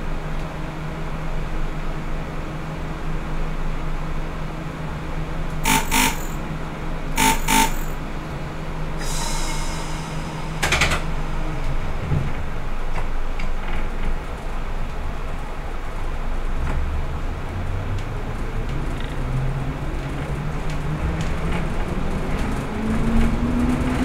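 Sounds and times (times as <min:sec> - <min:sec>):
diesel railcar engine hum: 0:00.0 - 0:24.0
hissing air: 0:09.0 - 0:10.7.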